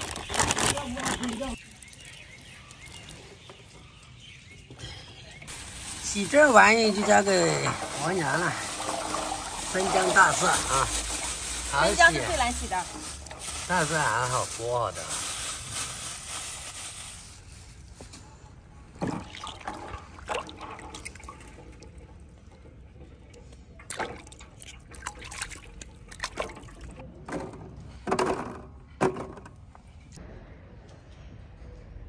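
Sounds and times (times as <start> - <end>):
water splashing and sloshing: 0.0 - 17.2, 18.8 - 30.2
running water: 5.4 - 15.2, 19.0 - 27.0.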